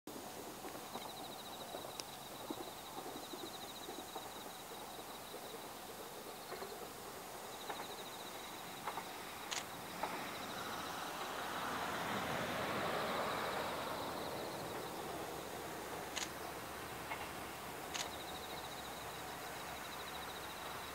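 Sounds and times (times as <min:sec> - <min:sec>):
faint scattered clicks: 0:00.4 - 0:07.0, 0:07.6 - 0:10.6, 0:15.9 - 0:20.9
broad rushing noise: 0:05.9 - 0:20.9.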